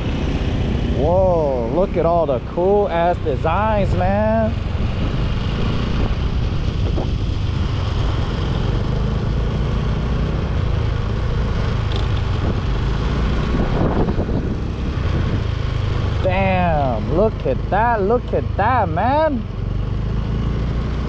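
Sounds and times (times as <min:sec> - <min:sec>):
wind rumbling on microphone: 0:03.2 - 0:09.3, 0:10.4 - 0:16.7.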